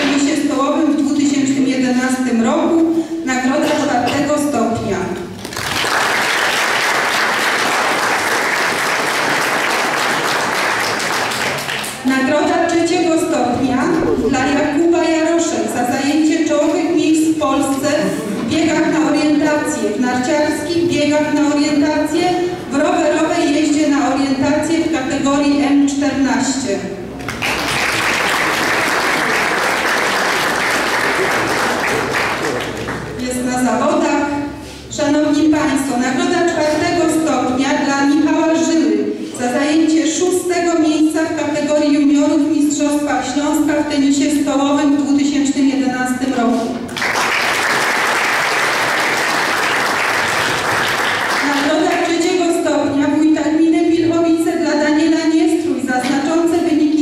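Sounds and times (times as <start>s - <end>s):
audience applauding: 5.4s - 12.0s, 27.2s - 33.1s, 46.9s - 51.8s.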